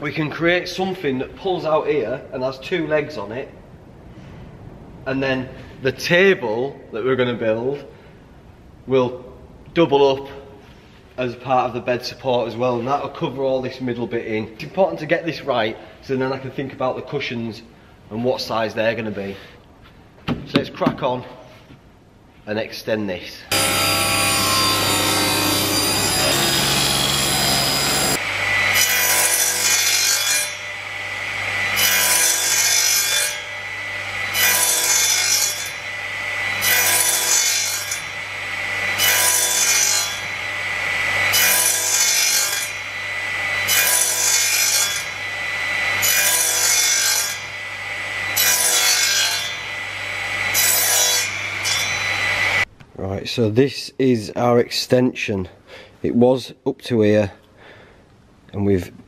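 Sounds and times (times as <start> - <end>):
crosscut saw passes through wood: 23.5 - 52.7
saw motor humming: 23.5 - 52.7
table saw cutting wood: 23.5 - 52.7.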